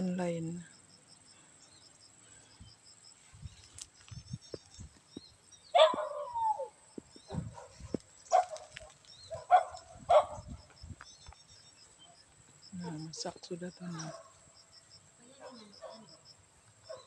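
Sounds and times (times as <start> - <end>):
insects chirping: 0.0 - 17.0
dog barking: 5.8 - 6.4, 7.3 - 10.5, 14.1 - 14.4, 15.4 - 16.2.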